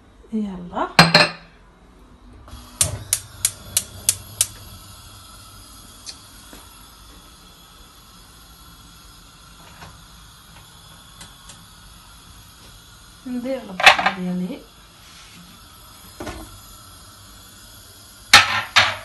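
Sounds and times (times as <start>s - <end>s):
gas burner hissing: 2.3s - 19.0s
stove igniter clicks: 2.8s - 4.6s.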